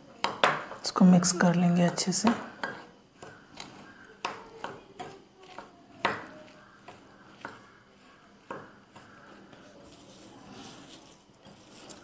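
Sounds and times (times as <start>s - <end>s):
metal spoon scraping glass bowl: 8.9s - 12.0s.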